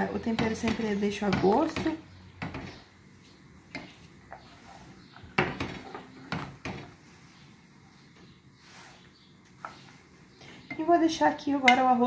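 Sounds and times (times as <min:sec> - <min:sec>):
wooden spoon stirring rice: 0:00.0 - 0:12.0
spoon knocking against pot: 0:11.6 - 0:12.0.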